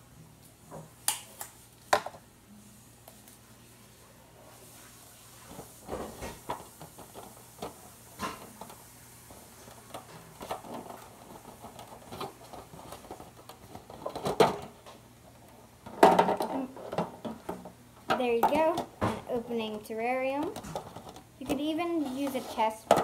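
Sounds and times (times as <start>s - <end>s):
aluminium foil pans crinkling: 5.4s - 23.0s.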